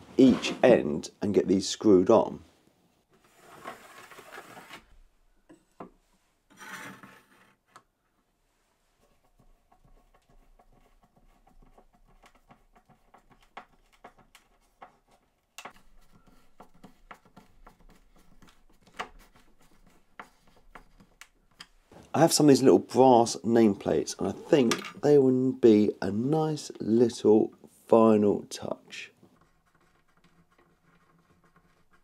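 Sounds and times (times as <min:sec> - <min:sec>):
pencil scratching along ruler: 0:09.0 - 0:21.2, 0:29.3 - 0:32.0.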